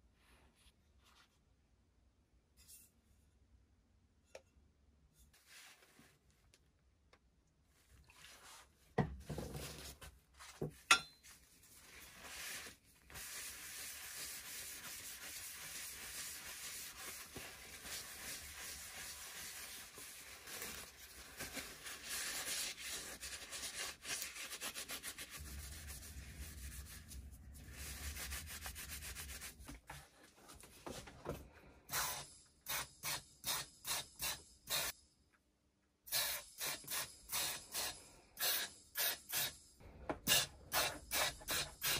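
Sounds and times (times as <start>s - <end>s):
paper towel rubbing metal: 11.8s - 29.7s
spray gun bursts: 36.1s - 39.5s.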